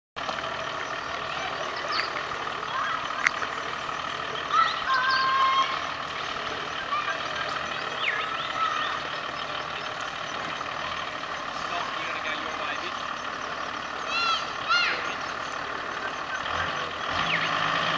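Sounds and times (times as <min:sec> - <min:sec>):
vehicle engine running slowly: 0:00.2 - 0:17.9.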